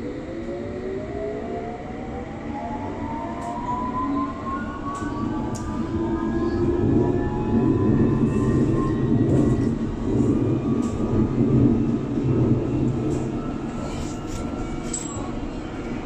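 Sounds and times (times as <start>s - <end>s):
train wheels rumbling on track: 3.4s - 16.0s.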